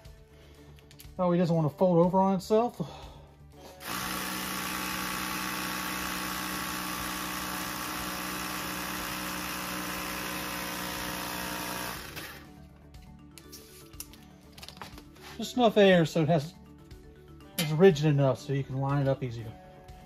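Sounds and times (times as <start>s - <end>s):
cordless air inflator running: 3.6s - 12.5s.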